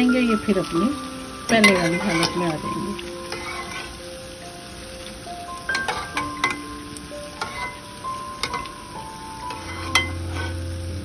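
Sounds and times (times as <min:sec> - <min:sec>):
fritters sizzling in oil: 0:00.0 - 0:11.0
soft background music: 0:00.0 - 0:11.0
metal spoon scraping and clinking: 0:01.5 - 0:04.0, 0:05.7 - 0:06.7, 0:07.4 - 0:08.8, 0:09.4 - 0:10.6.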